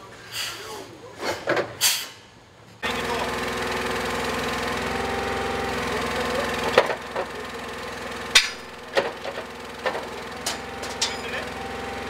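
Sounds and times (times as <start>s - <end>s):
truck engine running: 2.8s - 12.0s
metal parts knocking and clattering: 9.0s - 11.4s.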